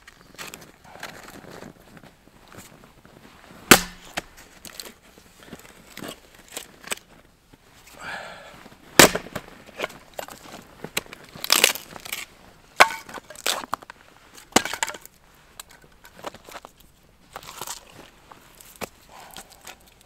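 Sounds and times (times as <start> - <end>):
axe splitting log: 3.7 - 4.8, 9.0 - 9.5.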